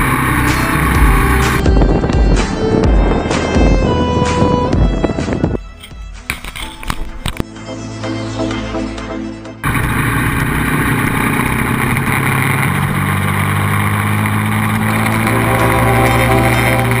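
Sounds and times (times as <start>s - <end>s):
motorcycle engine running: 0.0s - 7.4s, 9.6s - 17.0s
wind rush on microphone: 0.0s - 7.4s.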